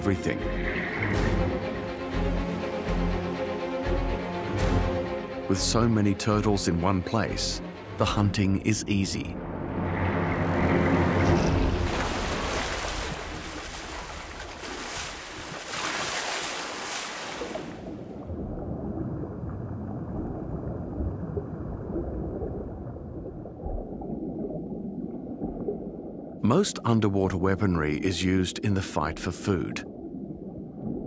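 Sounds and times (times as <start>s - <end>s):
water splashing and churning: 0.0s - 8.4s, 9.4s - 26.6s
muffled underwater rumble: 17.9s - 26.4s.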